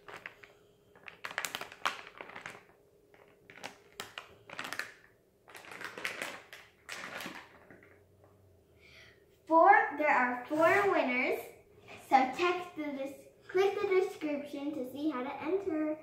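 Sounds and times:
foil packets crinkling: 0.0s - 8.0s.

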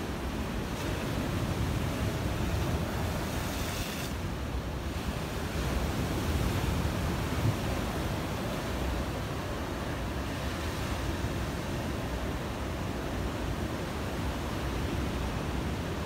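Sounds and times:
ocean surf breaking: 0.1s - 12.8s.

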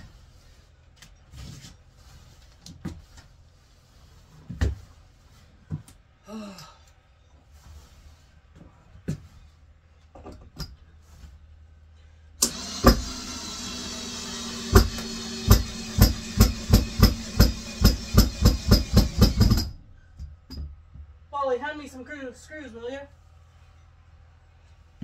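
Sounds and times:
cordless drill motor whine: 12.4s - 16.0s.

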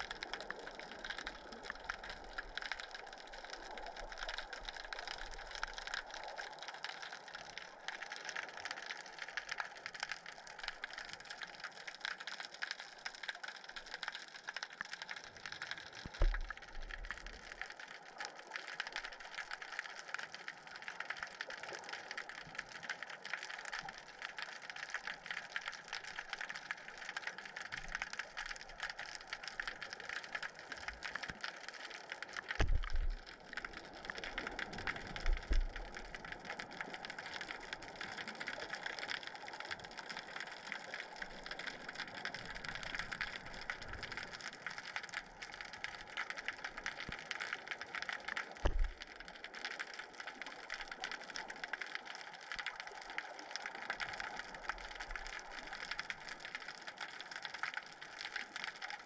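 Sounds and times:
dense underwater crackle: 0.0s - 59.0s
low underwater thumps: 16.1s - 16.5s, 32.6s - 33.2s, 48.6s - 49.0s.

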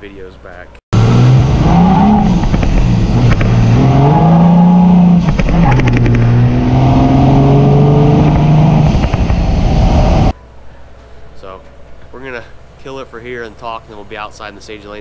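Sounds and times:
diesel engine accelerating: 0.9s - 10.4s.

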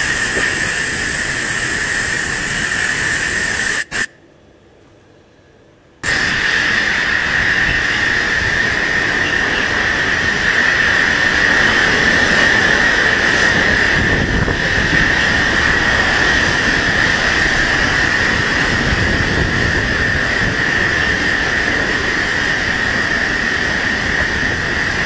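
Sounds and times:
wind and driving rain roaring: 6.0s - 25.0s.

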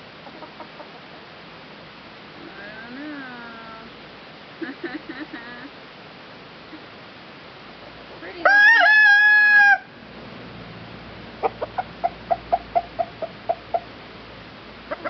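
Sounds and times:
chicken clucking: 0.2s - 0.9s, 11.4s - 13.9s
rooster crowing: 8.4s - 10.0s.

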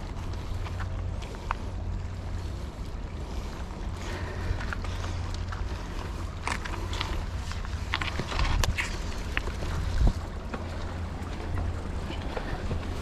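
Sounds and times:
bicycle tyres rumbling on dirt: 0.0s - 13.0s
bike clicks and rattles: 0.0s - 13.0s
wind on microphone: 6.8s - 13.0s.

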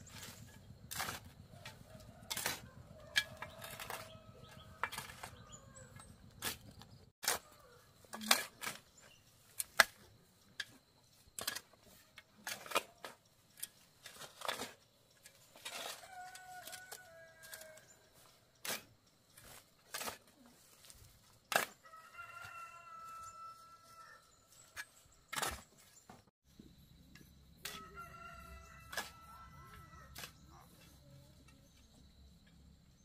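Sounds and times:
rooster crowing: 16.0s - 17.9s, 21.8s - 24.3s, 27.7s - 30.2s.

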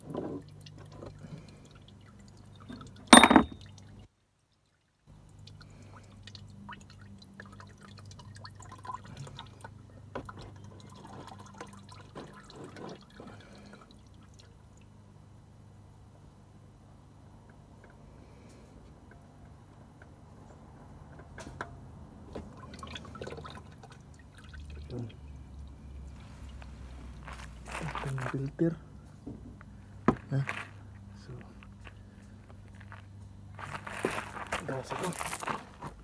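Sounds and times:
loud metal clank: 3.1s - 3.6s.

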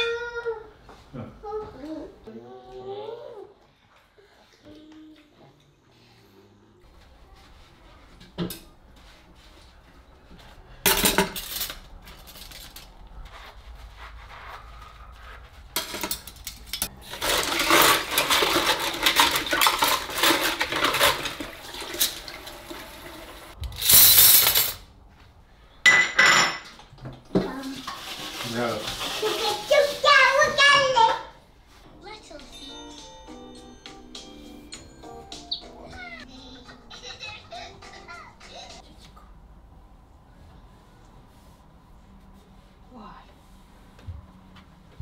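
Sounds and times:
crockery and utensils clinking: 15.8s - 22.3s, 25.9s - 26.8s.

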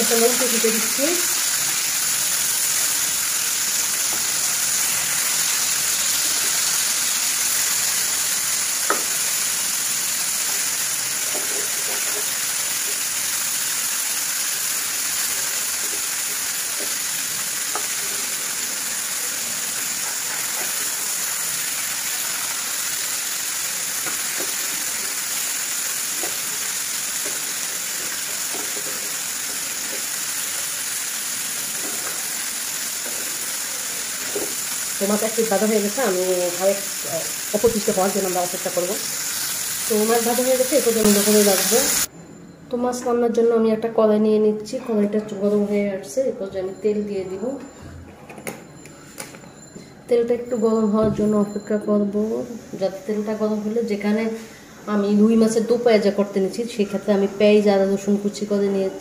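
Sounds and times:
fish sizzling in hot oil: 0.0s - 42.1s.

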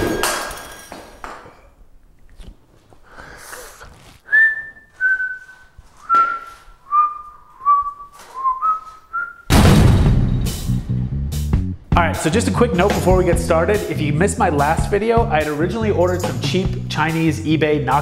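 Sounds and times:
man whistling a tune: 4.3s - 9.5s.

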